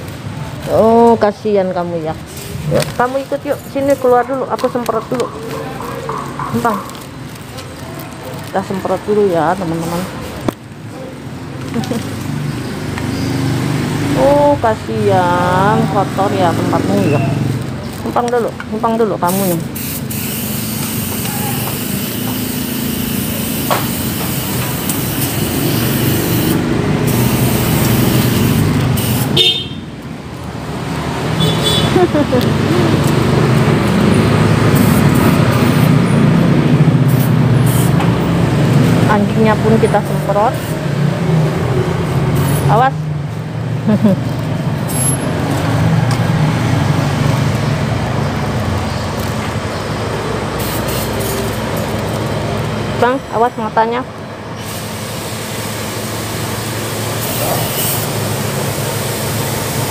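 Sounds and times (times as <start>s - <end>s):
road traffic hum: 0.0s - 59.9s
spray bottle hissing: 19.2s - 29.5s, 34.4s - 36.0s, 37.0s - 38.1s, 42.3s - 42.7s, 50.5s - 51.6s, 54.6s - 59.9s.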